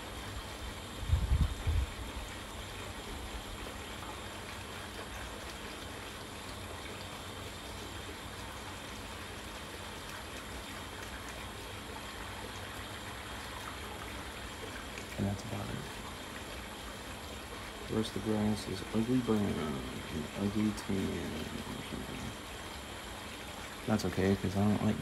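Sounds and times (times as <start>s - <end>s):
steady hissing noise: 0.0s - 25.0s.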